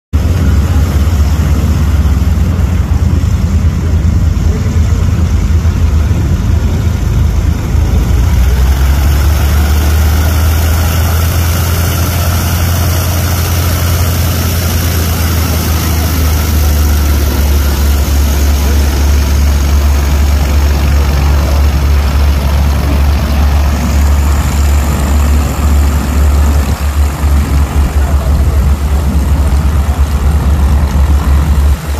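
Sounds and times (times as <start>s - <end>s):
propeller plane engine droning: 0.2s - 31.9s.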